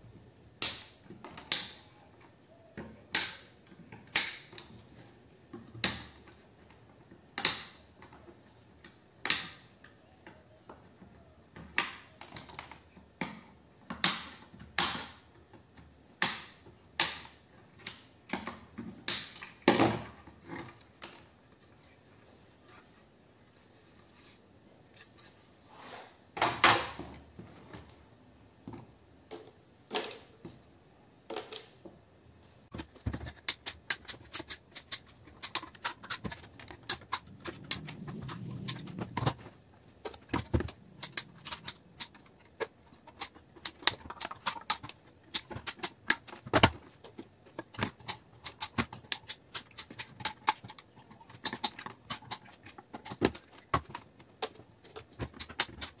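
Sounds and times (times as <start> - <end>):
hand tools clicking and scraping metal: 32.7 - 56.0.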